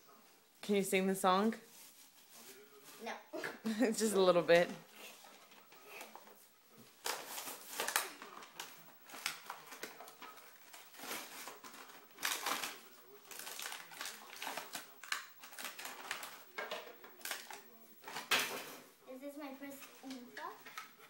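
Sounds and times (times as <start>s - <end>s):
foil packet crinkling and tearing: 7.0s - 18.3s.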